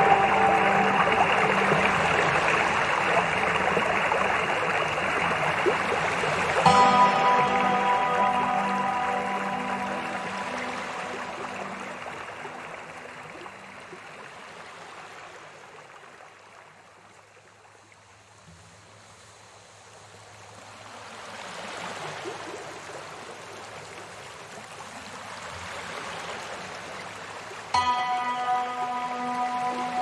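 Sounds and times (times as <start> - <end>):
background music: 0.0 - 13.4, 27.8 - 30.0
steady rain hiss: 0.0 - 15.8.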